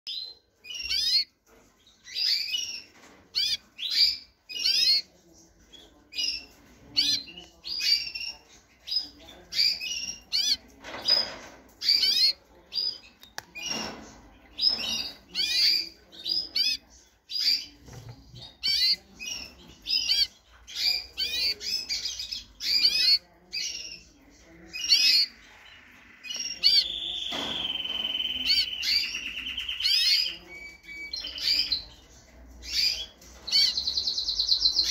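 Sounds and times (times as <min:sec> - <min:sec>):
canary singing: 0:00.1 - 0:34.9.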